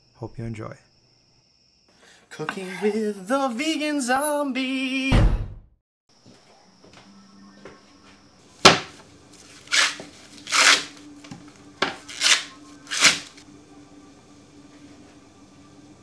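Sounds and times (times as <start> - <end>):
corn husks ripping: 9.4 - 11.0, 11.9 - 13.4.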